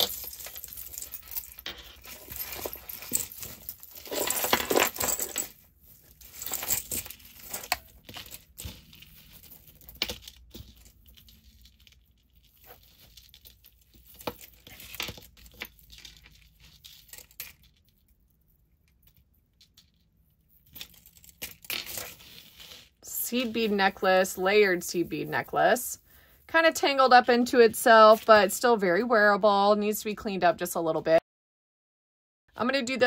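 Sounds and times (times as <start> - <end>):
beads and chains clinking: 0.0 - 18.0, 20.4 - 28.5
rustling: 0.0 - 18.2.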